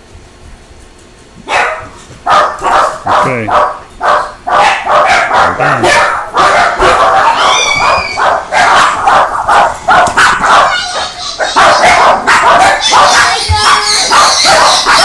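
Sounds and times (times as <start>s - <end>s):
small dogs barking and yipping: 1.4s - 15.0s
dog high squeal: 6.5s - 9.0s, 10.2s - 15.0s.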